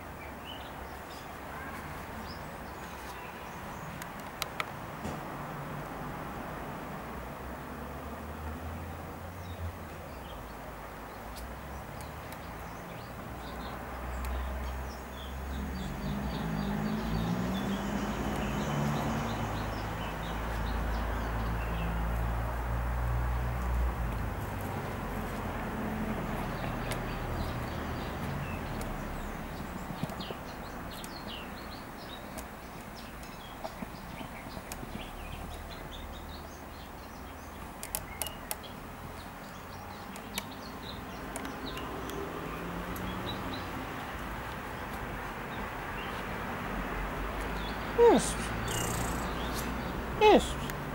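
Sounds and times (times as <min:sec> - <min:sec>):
small birds chirping: 0:00.0 - 0:04.9, 0:08.8 - 0:50.9
sharp clicks: 0:37.6 - 0:38.7.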